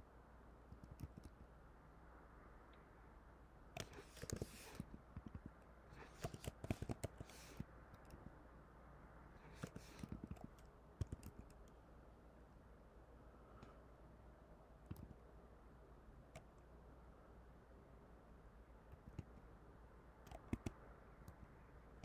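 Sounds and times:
computer keyboard typing: 0.7 - 1.4, 3.8 - 8.3, 9.4 - 11.8, 20.2 - 22.0.

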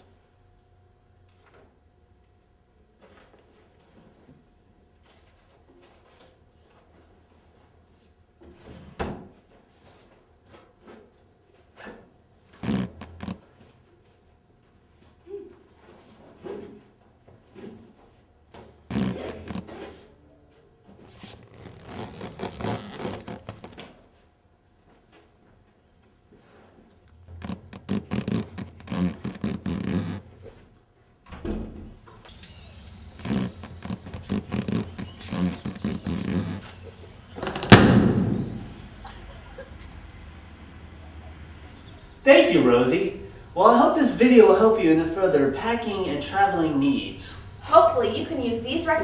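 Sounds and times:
zipper rasping: 12.5 - 13.5, 18.9 - 20.0, 21.1 - 23.8, 27.3 - 30.5, 32.3 - 37.7
loud explosion bang: 37.4 - 39.0.

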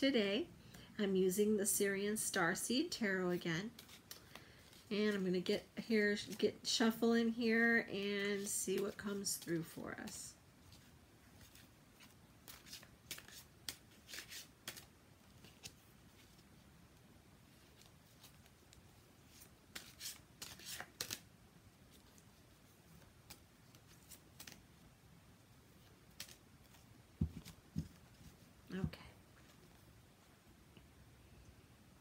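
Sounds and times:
cards being shuffled: 3.6 - 5.3, 8.2 - 16.6, 17.5 - 24.9, 25.8 - 28.5.

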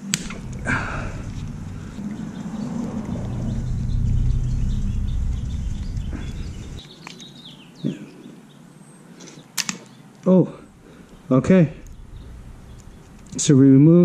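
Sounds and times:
low rumble: 0.0 - 6.8, 10.7 - 14.0
faint bird chirps: 0.4 - 9.0.

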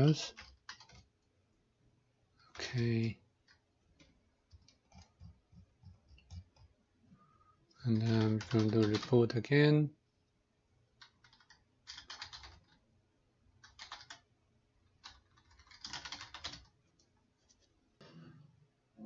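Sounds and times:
typing on a computer keyboard: 0.3 - 1.2, 3.4 - 6.7, 7.9 - 9.2, 11.0 - 12.8, 13.6 - 14.3, 14.9 - 16.7.

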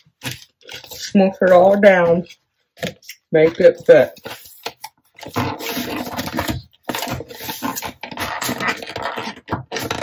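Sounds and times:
plastic lid scraping on container: 3.6 - 10.0.

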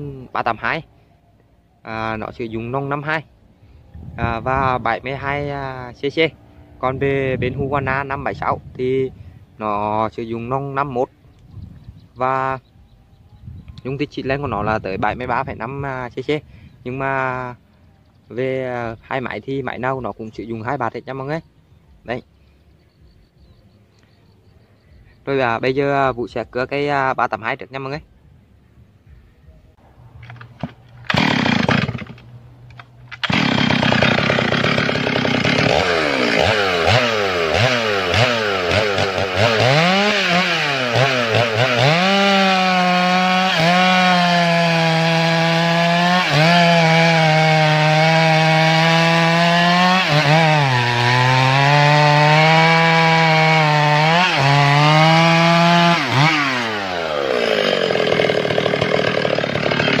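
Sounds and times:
chainsaw revving and cutting log: 31.1 - 32.4, 33.2 - 60.0.

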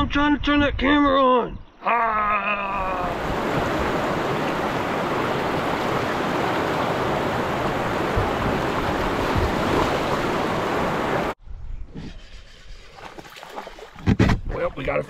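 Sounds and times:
river rapids rushing over rocks: 3.1 - 11.4.

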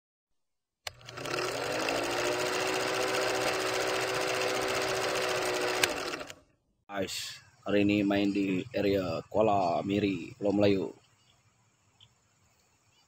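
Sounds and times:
film projector clatter: 0.9 - 6.4.

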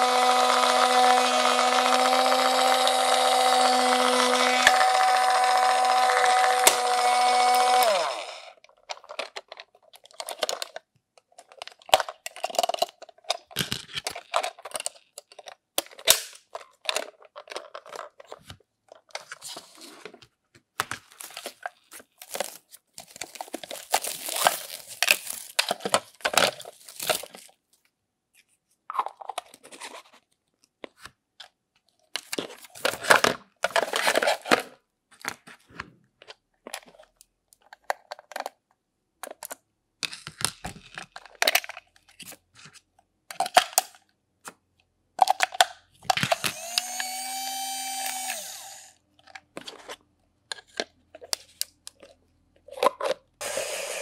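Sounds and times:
plastic parts clicking: 8.6 - 19.4, 36.2 - 42.7, 45.2 - 53.3
foam packaging rustling: 20.8 - 27.6.

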